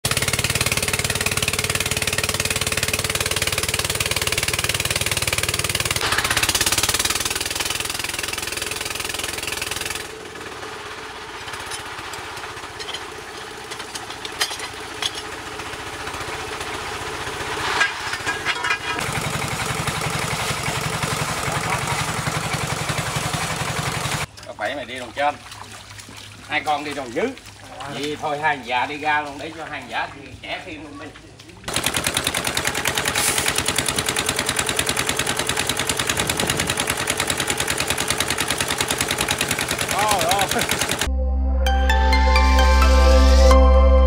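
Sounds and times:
diesel engine knocking: 0.0s - 17.5s, 19.0s - 24.3s, 31.7s - 41.1s
scattered knocks and clatter: 17.6s - 19.2s.

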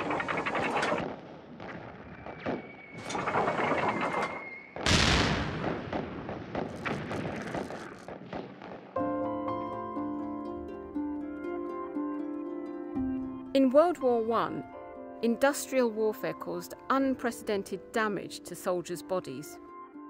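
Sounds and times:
artillery explosion: 0.0s - 9.0s
plucked-string music: 9.0s - 19.8s.

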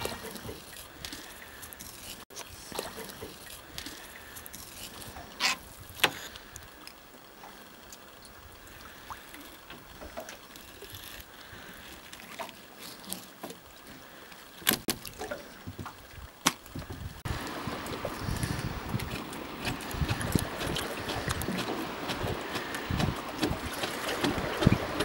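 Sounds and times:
water sounds: 0.0s - 25.0s
wind rumble on microphone: 15.6s - 25.0s.

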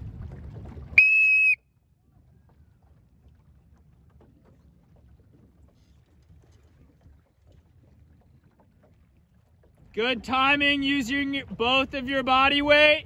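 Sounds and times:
wind buffeting microphone: 0.0s - 1.0s
shrill whistle blast: 1.0s - 1.6s.

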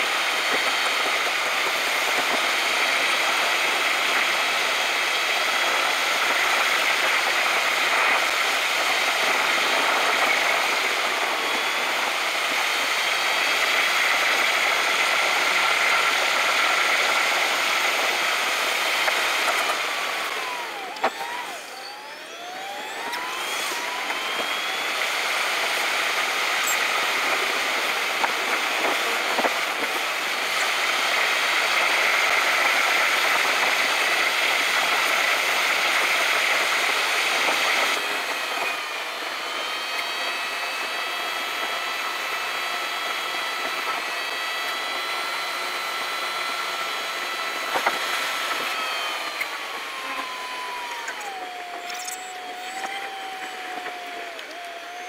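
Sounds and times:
road and engine rush: 0.0s - 55.0s
short gliding whines: 20.2s - 27.8s, 47.5s - 55.0s.

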